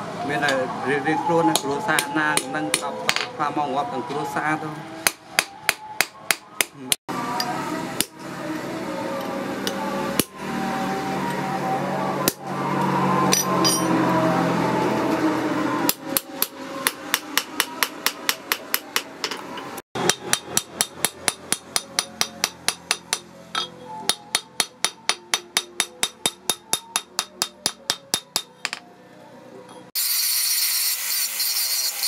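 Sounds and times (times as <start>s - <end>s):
hammer striking metal on anvil: 13.3s - 14.0s, 15.9s - 28.8s.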